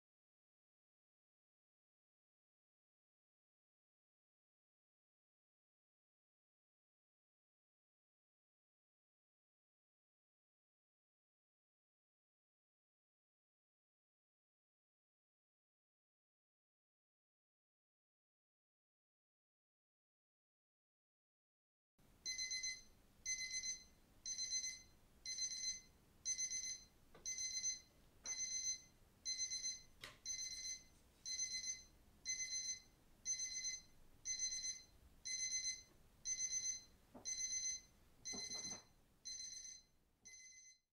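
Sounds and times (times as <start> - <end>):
electronic timer alarm beeping: 22.2 - 40.8.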